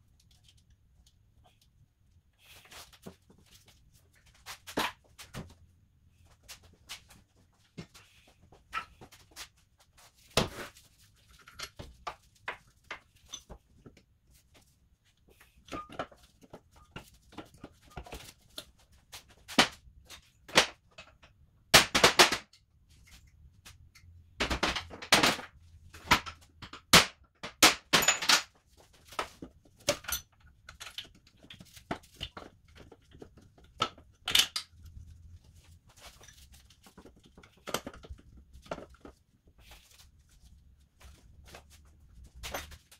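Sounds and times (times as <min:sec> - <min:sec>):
metal tools clicking and clattering: 0:27.9 - 0:28.5, 0:29.8 - 0:31.6.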